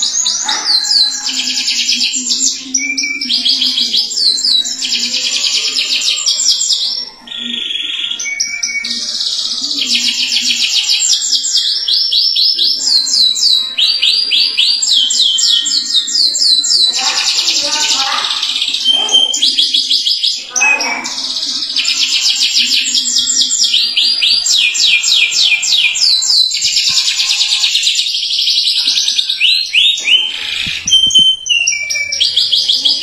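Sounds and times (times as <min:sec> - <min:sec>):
canary singing trills: 0:00.0 - 0:33.0.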